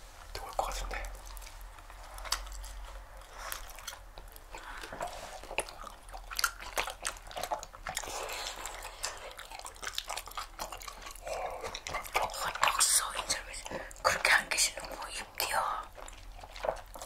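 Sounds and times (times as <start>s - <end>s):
people chewing with wet smacks: 0.2s - 17.0s.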